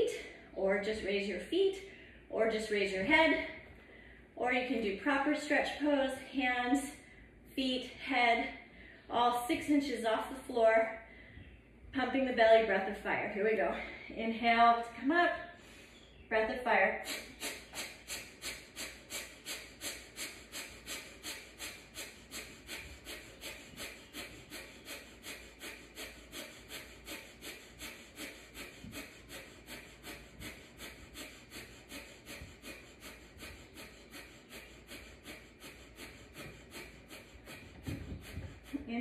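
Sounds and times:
woman breathing rapidly through nose: 3.8s - 4.4s, 17.0s - 39.0s.

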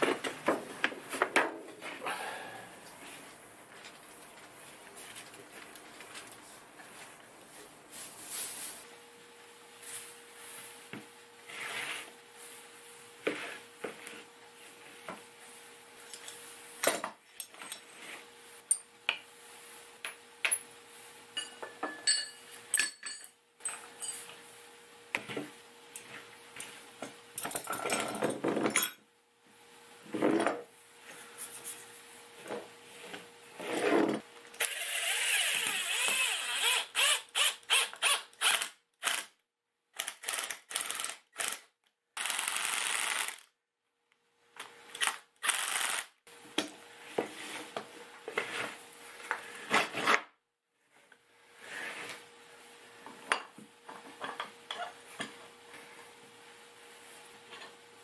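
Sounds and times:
power tool running: 42.2s - 43.5s, 45.0s - 46.1s.

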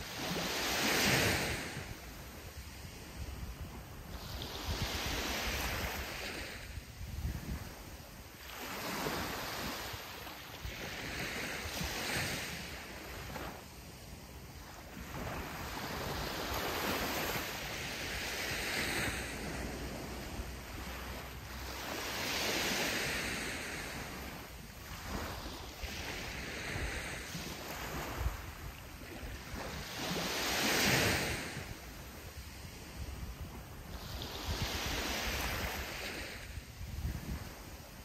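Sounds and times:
sea waves breaking on beach: 0.0s - 38.0s.

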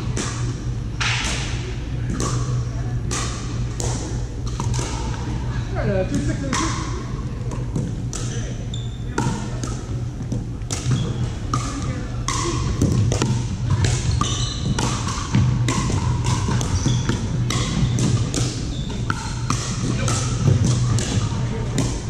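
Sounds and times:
steady low hum: 0.0s - 22.0s
plastic balls hitting paddles: 1.0s - 5.3s, 9.2s - 22.0s
sneaker squeaks on hardwood: 8.7s - 9.2s, 10.8s - 11.4s, 14.0s - 15.0s, 16.6s - 18.0s, 18.6s - 19.5s.

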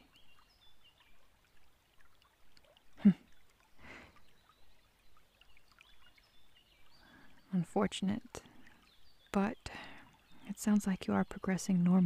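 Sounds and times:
stream trickling: 0.0s - 12.0s
woman humming: 3.0s - 3.2s.

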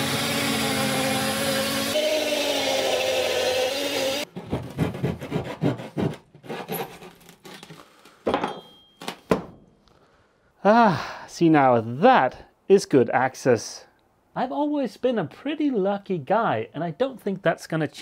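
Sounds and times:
electric saw cutting wood: 0.0s - 4.3s.

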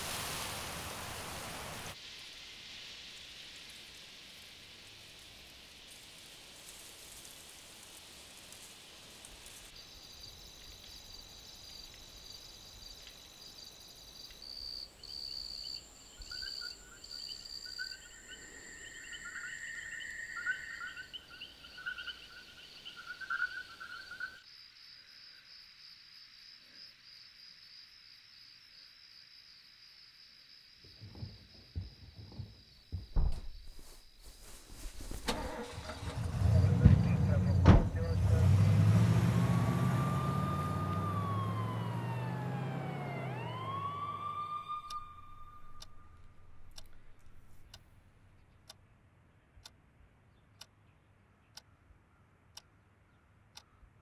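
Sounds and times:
high pulsing cricket chirp: 1.9s - 38.2s
crickets trilling: 1.9s - 47.8s.

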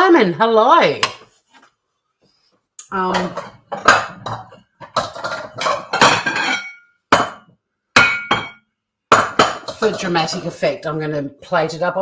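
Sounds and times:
dishes clattering and clinking: 3.0s - 10.5s.

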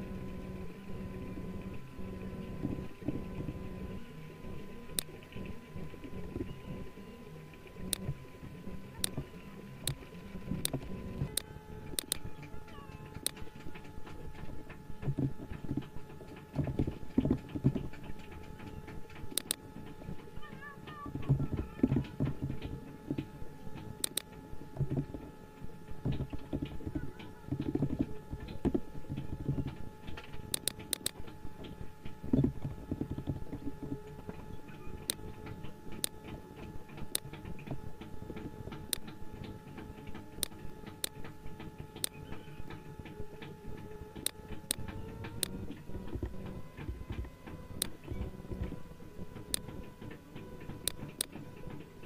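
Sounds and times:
faint hum: 0.0s - 52.0s
mouse clicking: 4.9s - 5.1s, 10.6s - 14.1s, 17.7s - 19.6s, 23.9s - 24.3s, 26.1s - 31.3s, 34.7s - 36.2s, 37.0s - 37.6s, 38.3s - 41.4s, 42.0s - 43.6s, 44.2s - 48.8s, 49.4s - 49.8s
keyboard typing: 7.7s - 25.3s, 25.9s - 52.0s.

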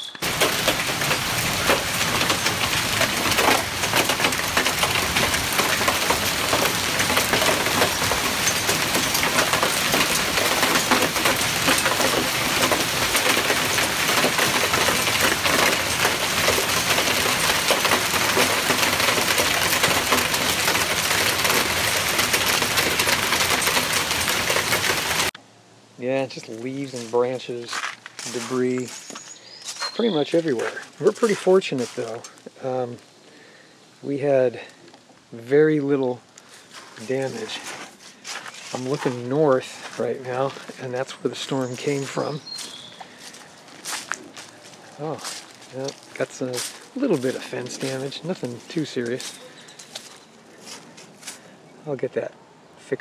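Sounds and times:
hail and rain falling: 0.2s - 25.4s, 30.2s - 32.2s, 36.5s - 50.8s.

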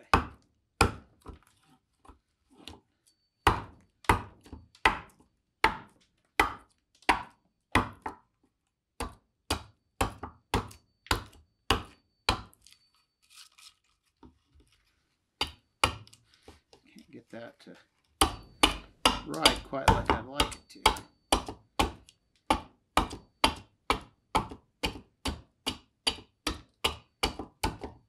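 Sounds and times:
adze chopping wood: 0.1s - 1.4s, 3.5s - 8.2s, 9.0s - 12.6s, 15.4s - 16.1s, 18.2s - 28.0s.

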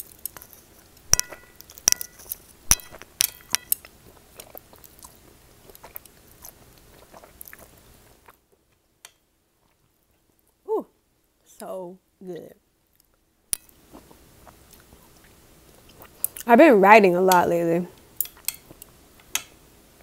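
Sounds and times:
slurping and chewing noodles: 3.8s - 8.4s, 13.8s - 16.5s
chopsticks clicking on plate: 19.2s - 19.6s.

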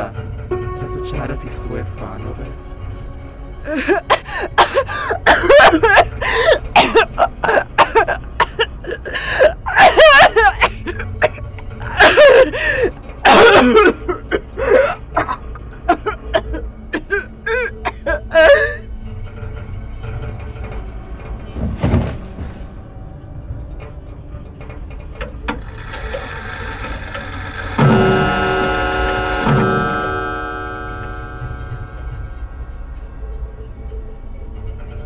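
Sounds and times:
cries gasps and yelps: 3.7s - 18.8s
low steady drone: 22.7s - 35.0s.

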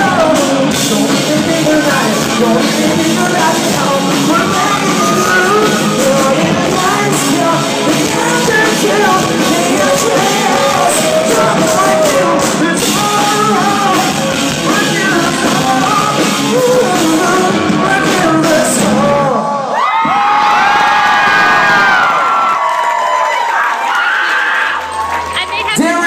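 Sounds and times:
rock band playing live: 0.0s - 19.7s
lead singer singing: 0.0s - 19.8s.

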